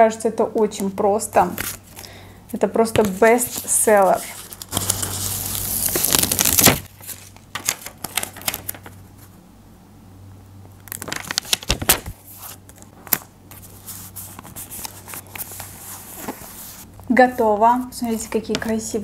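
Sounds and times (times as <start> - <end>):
soft paper crackles and taps: 2.8 - 4.8
paper backing tearing: 3.5 - 9.0.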